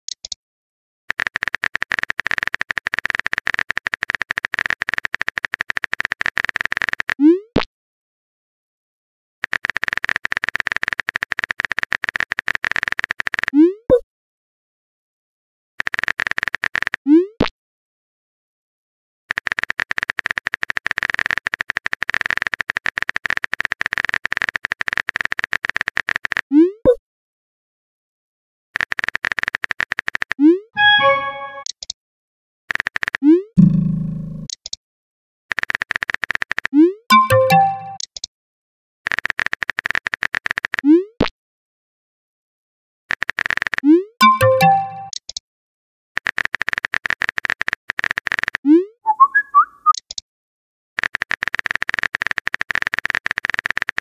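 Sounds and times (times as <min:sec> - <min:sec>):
phone keyboard clicks: 0:46.2 - 0:48.6, 0:51.0 - 0:54.0.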